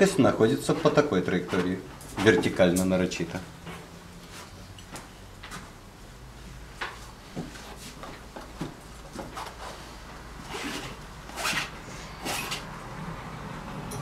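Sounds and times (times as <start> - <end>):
palette knife scraping canvas: 10.5 - 12.7.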